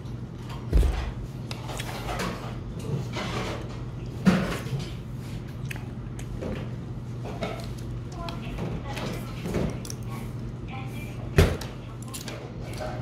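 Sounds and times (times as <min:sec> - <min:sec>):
steady low hum: 0:00.0 - 0:13.0
man chewing: 0:05.3 - 0:06.6.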